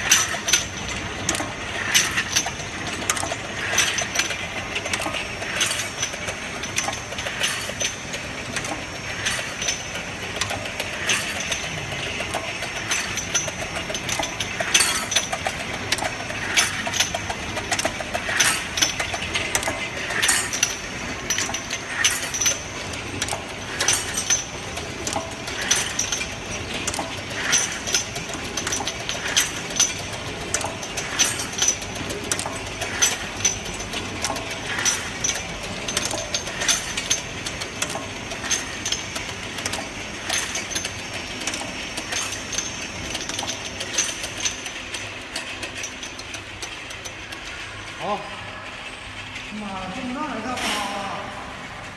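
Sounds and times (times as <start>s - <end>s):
loud machine clack: 0.0s - 51.7s
machine clattering: 0.0s - 51.9s.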